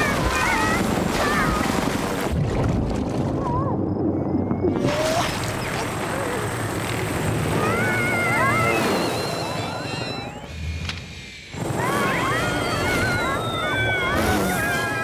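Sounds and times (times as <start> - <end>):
cartoon voices squealing: 7.6 - 10.5, 11.7 - 15.0.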